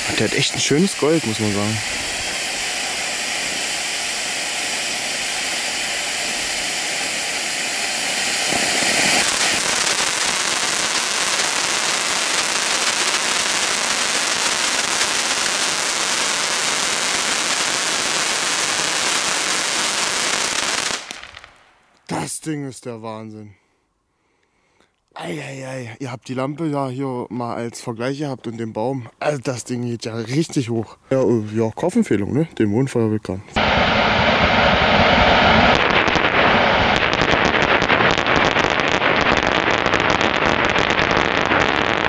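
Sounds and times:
firework fountain hissing: 0:00.0 - 0:22.2, 0:33.6 - 0:42.0.

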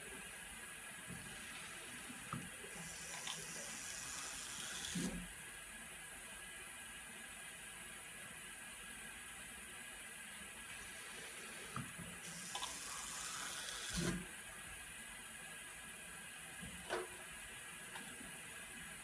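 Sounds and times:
water running from hose: 0:02.7 - 0:05.2, 0:12.2 - 0:14.2.

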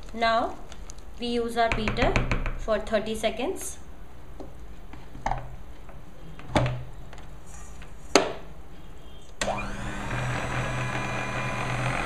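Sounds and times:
stand mixer motor running: 0:09.4 - 0:12.0.

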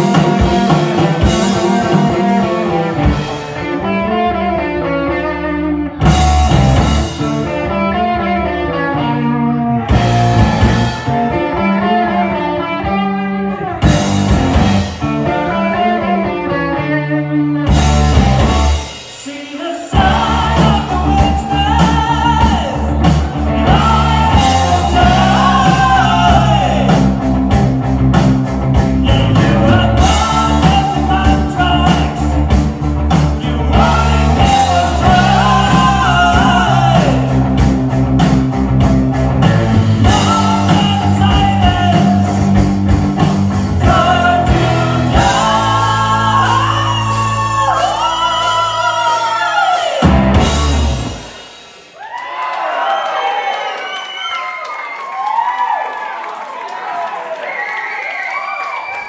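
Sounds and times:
electric guitar riff: 0:00.0 - 0:19.0
live heavy metal band: 0:00.0 - 0:52.1
person singing: 0:19.0 - 0:27.3, 0:28.8 - 0:32.6, 0:33.2 - 0:37.6, 0:39.4 - 0:42.6, 0:43.7 - 0:50.2.

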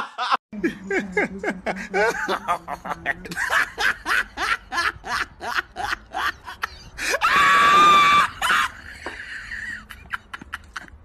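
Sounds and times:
woman laughing hysterically: 0:00.0 - 0:11.0
woman shrieking: 0:07.1 - 0:08.8.

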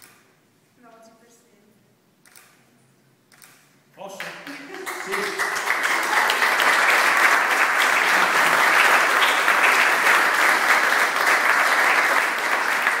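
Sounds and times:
crowd applauding: 0:04.2 - 0:13.0.

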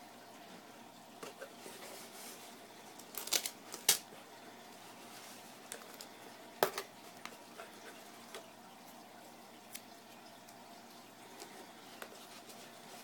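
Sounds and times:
tape and foam crackling in box: 0:01.4 - 0:04.1, 0:09.7 - 0:13.0.

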